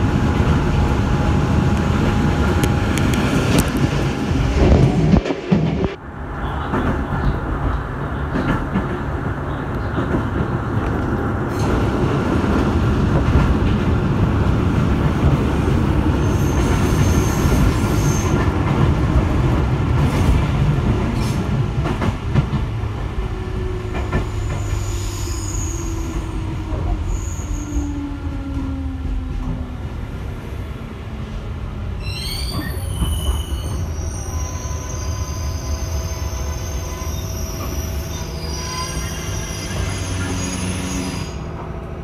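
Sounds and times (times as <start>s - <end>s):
train wheel squeals: 16.2s - 18.5s, 24.1s - 28.1s, 32.0s - 41.5s.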